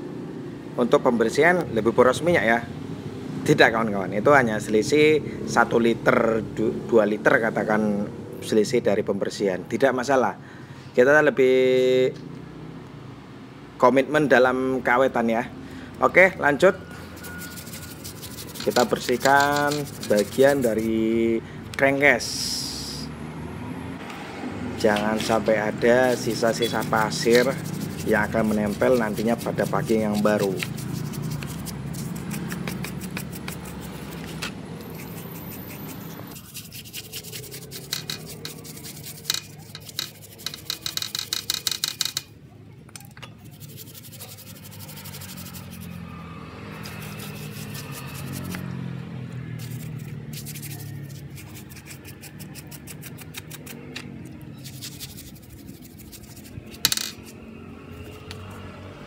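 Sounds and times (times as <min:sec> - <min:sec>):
wire brush scrubbing metal: 0:17.0 - 0:21.2, 0:25.1 - 0:42.2, 0:43.4 - 0:48.6, 0:49.6 - 0:54.0, 0:54.6 - 0:57.4.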